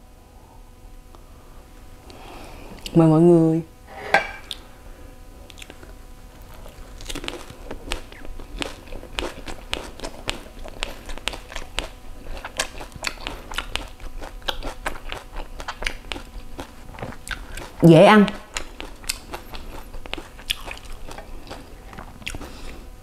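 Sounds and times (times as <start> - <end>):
crunchy chewing: 5.4 - 22.9
crunchy bite: 5.5 - 22.8.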